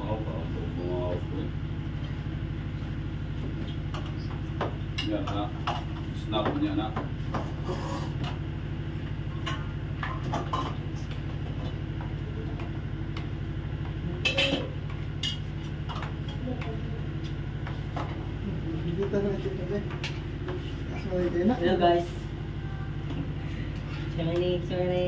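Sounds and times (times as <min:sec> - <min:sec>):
ship engine droning: 0:18.3 - 0:25.0.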